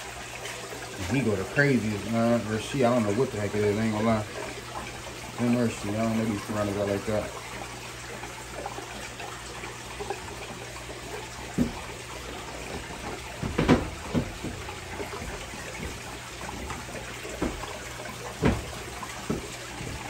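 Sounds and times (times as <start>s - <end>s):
water trickling and splashing: 0.0s - 20.0s
knocks against plastic box: 13.0s - 14.7s.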